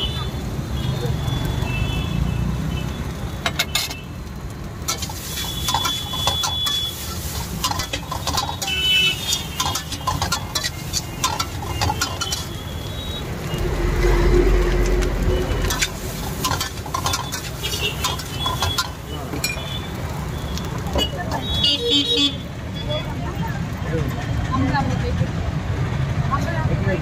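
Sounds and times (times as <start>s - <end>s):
spatula scraping a wok: 4.9s - 12.8s, 13.4s - 19.1s
low rumble: 13.3s - 16.4s.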